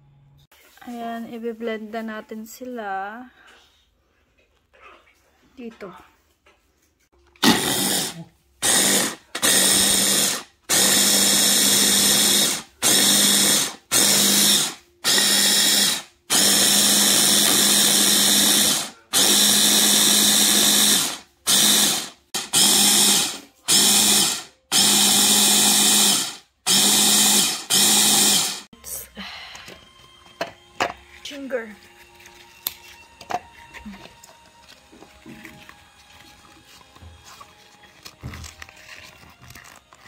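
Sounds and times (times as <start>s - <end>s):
immersion blender chopping: 7.4s - 28.7s.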